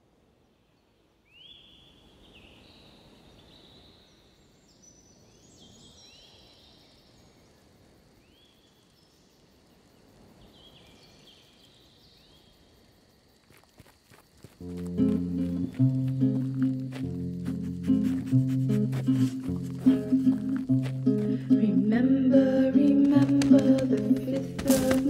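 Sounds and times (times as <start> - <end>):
low steady hiss: 0.0 - 25.0.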